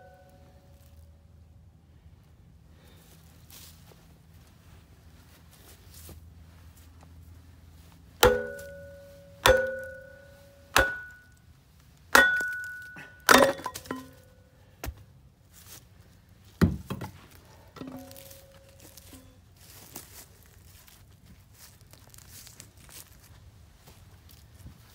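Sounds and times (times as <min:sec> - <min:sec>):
hammer striking log on wedge: 0:08.2 - 0:11.3, 0:12.2 - 0:14.2.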